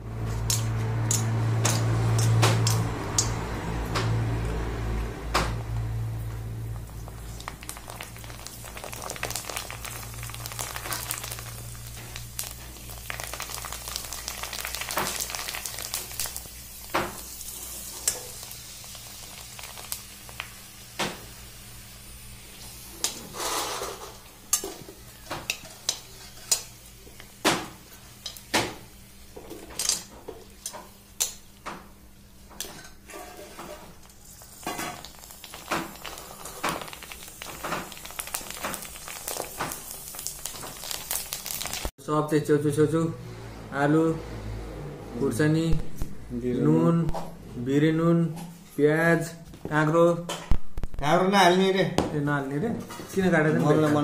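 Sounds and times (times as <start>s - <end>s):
dough deep-frying in hot oil: 0.0s - 42.0s.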